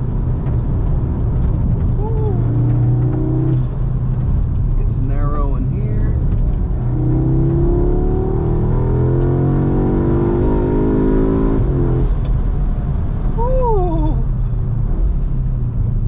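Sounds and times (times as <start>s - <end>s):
car engine accelerating: 0.0s - 16.0s
road and tyre rumble: 0.0s - 16.0s.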